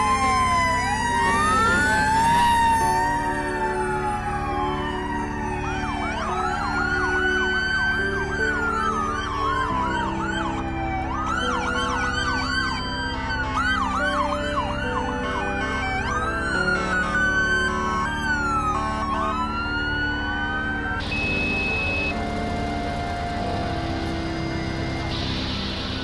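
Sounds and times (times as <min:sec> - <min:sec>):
low steady drone: 0:00.0 - 0:26.0
siren wailing: 0:00.0 - 0:26.0
sirens yelping: 0:00.0 - 0:26.0.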